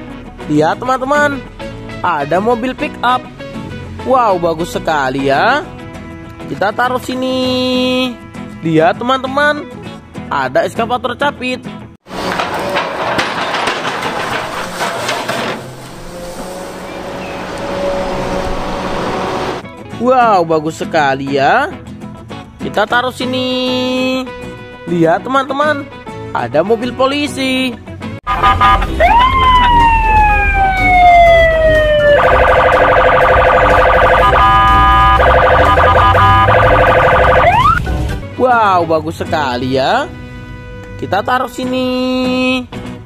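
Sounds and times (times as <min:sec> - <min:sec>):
excavator engine hum: 0:12.1 - 0:19.6
rocks clattering: 0:12.2 - 0:15.7
police siren wailing and warbling: 0:28.3 - 0:37.8.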